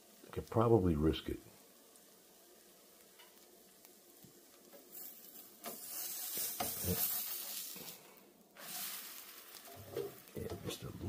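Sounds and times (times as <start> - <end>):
butter sizzling: 0.0 - 11.0
spatula scraping frying pan: 4.7 - 10.3.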